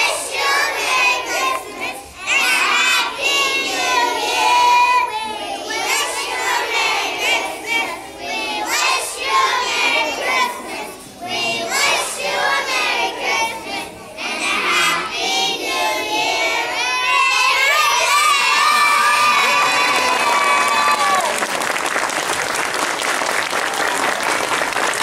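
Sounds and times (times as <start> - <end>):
children singing: 0.0 - 21.2
audience applause: 18.3 - 25.0.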